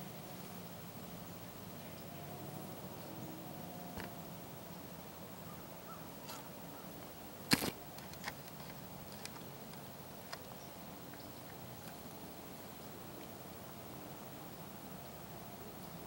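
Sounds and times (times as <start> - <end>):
quiet woodland background: 0.0 - 16.0
faint ticks: 6.2 - 12.2.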